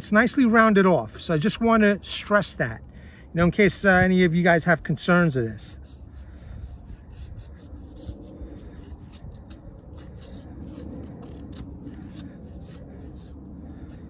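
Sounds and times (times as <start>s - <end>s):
knife scraping wood: 5.3s - 14.0s.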